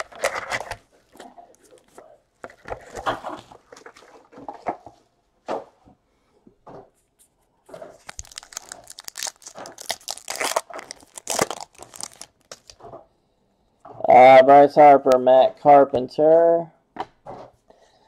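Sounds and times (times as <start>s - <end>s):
plastic wrapper tearing and crinkling: 8.0s - 12.8s.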